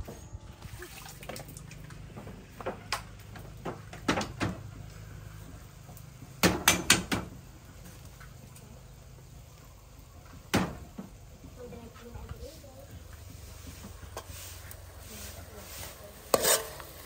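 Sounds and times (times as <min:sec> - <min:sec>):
kitchen knocks and clatters: 0:02.2 - 0:04.7, 0:06.4 - 0:07.4, 0:10.5 - 0:11.2.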